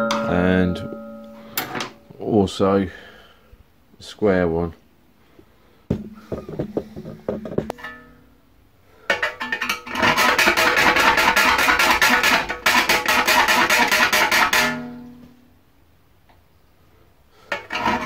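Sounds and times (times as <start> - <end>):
file rasping on ringing steel: 0.0 - 1.7.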